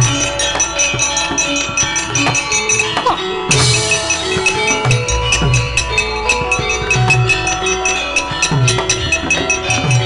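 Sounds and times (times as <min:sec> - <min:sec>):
gamelan playing: 0:00.0 - 0:10.0
ringing metallophone notes: 0:00.0 - 0:10.0
pitched drum strokes: 0:03.5 - 0:10.0.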